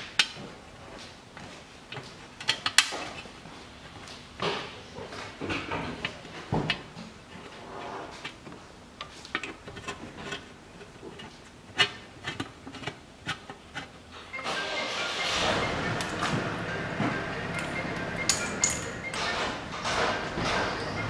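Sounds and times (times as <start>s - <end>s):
metal socket clicking on bolts: 18.3s - 18.9s.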